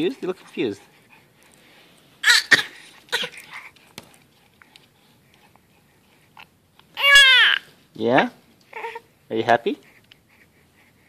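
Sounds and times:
baby cooing and grunting: 7.0 - 7.7, 8.7 - 9.1.

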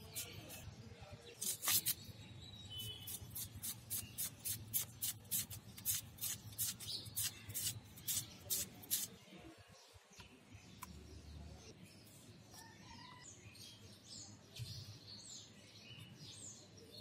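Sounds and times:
onion being sliced on a blade: 0.0 - 0.7, 1.4 - 2.1, 2.8 - 9.2.

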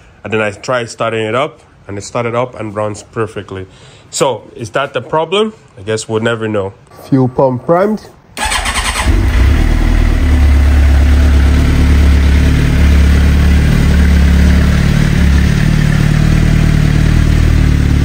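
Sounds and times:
motorcycle engine idling: 8.4 - 18.0.

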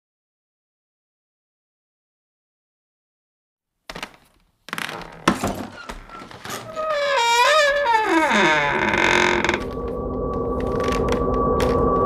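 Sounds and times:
low hum: 5.9 - 12.0
eerie wavering wail: 6.6 - 12.0.

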